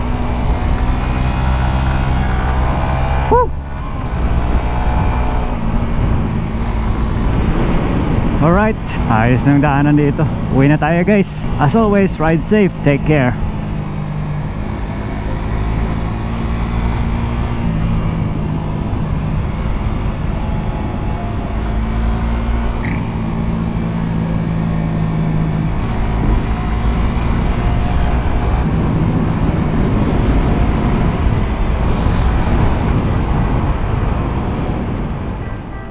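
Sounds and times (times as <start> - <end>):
motorcycle engine running: 0.0 - 35.8
rushing noise: 28.7 - 35.8.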